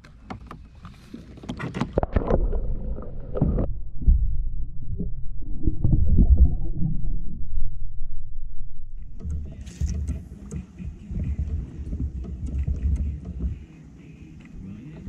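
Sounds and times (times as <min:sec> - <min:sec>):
water splashing against camera: 0:00.0 - 0:04.2, 0:09.0 - 0:15.0
underwater rumble and gurgle: 0:00.0 - 0:13.7.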